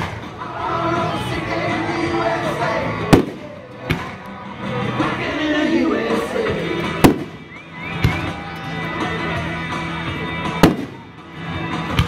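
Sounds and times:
music playing: 0:00.0 - 0:12.0
fireworks bangs: 0:03.1 - 0:04.0, 0:07.0 - 0:07.4, 0:10.6 - 0:11.0.

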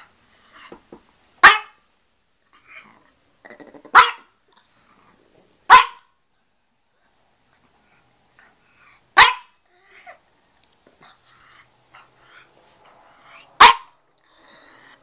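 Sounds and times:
small dog barking: 0:01.4 - 0:01.8, 0:03.9 - 0:04.3, 0:05.7 - 0:06.1, 0:09.2 - 0:09.6, 0:13.6 - 0:14.0.

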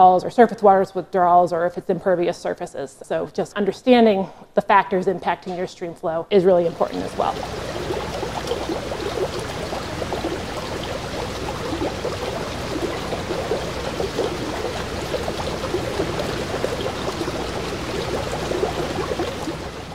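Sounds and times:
stream water rushing over rocks: 0:06.7 - 0:19.9.

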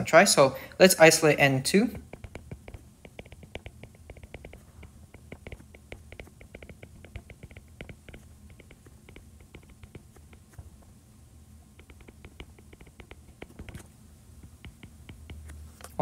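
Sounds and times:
stylus tapping on tablet screen: 0:02.0 - 0:11.0, 0:11.8 - 0:15.6.

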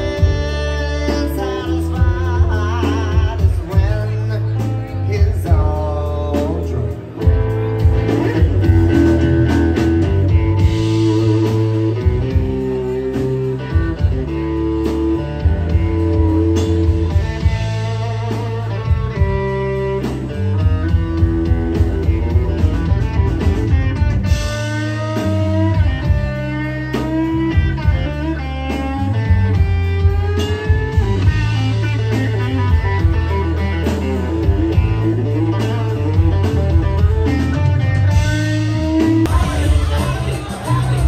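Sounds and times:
bass: 0:00.0 - 0:41.0
drums: 0:00.0 - 0:41.0
electric guitar lead: 0:00.0 - 0:41.0.

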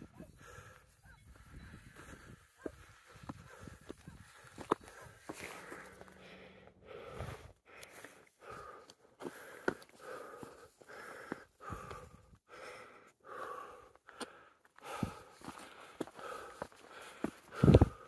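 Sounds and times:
footsteps on a trail: 0:00.0 - 0:18.0
person panting heavily: 0:00.0 - 0:18.0.

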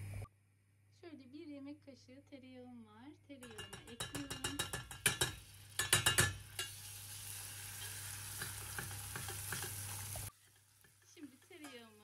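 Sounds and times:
metal spoon clicking against pot: 0:03.4 - 0:06.7
butter sizzling in a pot: 0:03.4 - 0:12.0.

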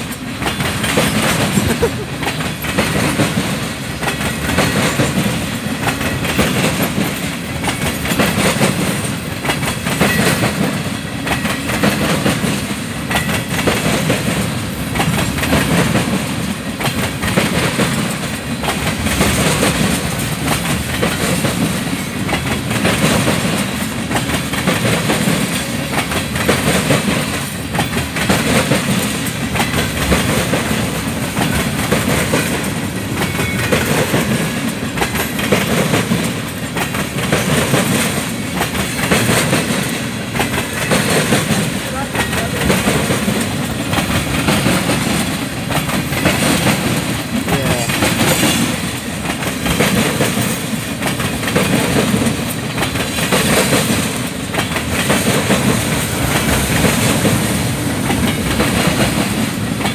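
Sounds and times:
low train rumble: 0:00.0 - 0:59.9
train wheels clacking on rails: 0:00.0 - 0:59.9.

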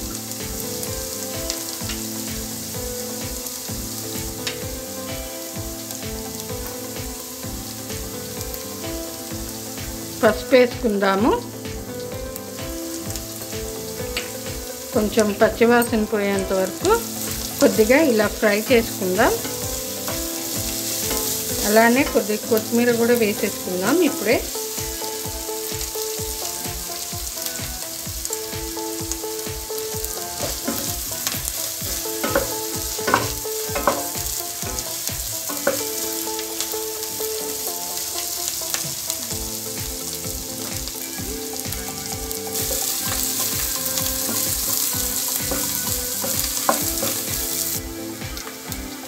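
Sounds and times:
onions sizzling in oil: 0:00.0 - 0:49.0
spatula scraping pan: 0:15.4 - 0:24.9, 0:30.2 - 0:36.2.

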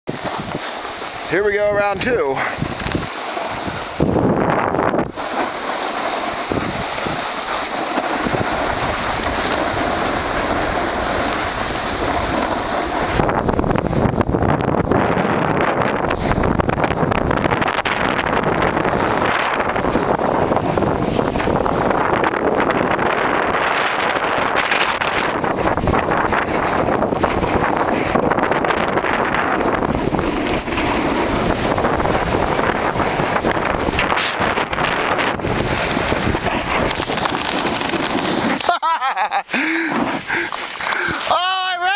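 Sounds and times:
skis hissing on snow: 0:00.1 - 0:14.0, 0:18.8 - 0:21.9, 0:25.5 - 0:41.4
wind rushing over microphone: 0:00.1 - 0:41.9.

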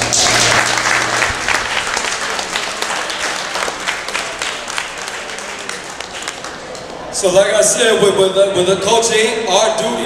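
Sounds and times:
audience applauding: 0:00.0 - 0:07.1.

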